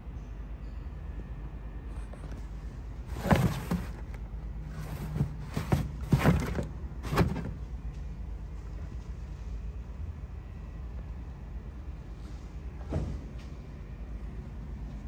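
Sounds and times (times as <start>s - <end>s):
trunk panel rustling and thumping: 3.0s - 7.6s.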